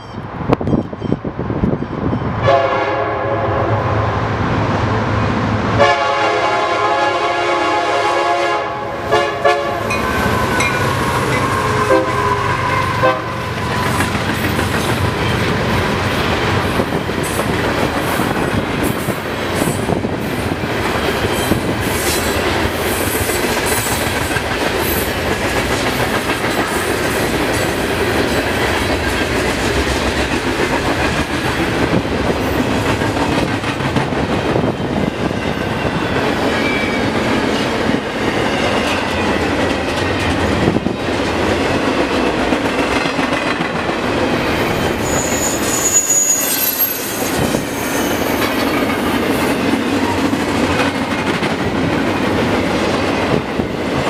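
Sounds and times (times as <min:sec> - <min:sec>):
train horn blasts: 0:02.4 - 0:04.0, 0:05.8 - 0:13.6
freight cars rumbling: 0:09.7 - 0:45.8.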